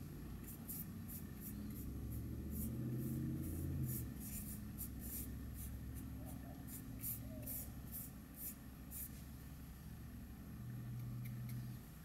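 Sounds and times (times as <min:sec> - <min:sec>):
low steady hum: 0:00.0 - 0:12.0
paintbrush swishing over wood: 0:00.6 - 0:05.8.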